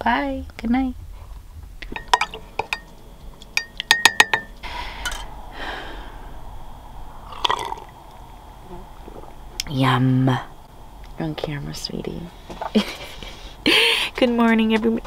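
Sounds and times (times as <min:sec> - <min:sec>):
dishware clinking: 0:01.8 - 0:05.3
liquid pouring: 0:07.2 - 0:08.3.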